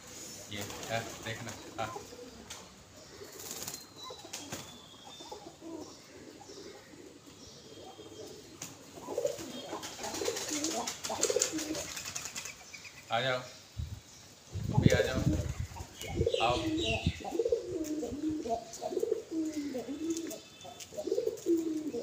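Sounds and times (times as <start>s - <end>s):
pigeons cooing: 0.0s - 12.9s, 14.5s - 22.0s
wings flapping: 0.6s - 1.8s, 3.3s - 4.8s, 8.6s - 12.6s.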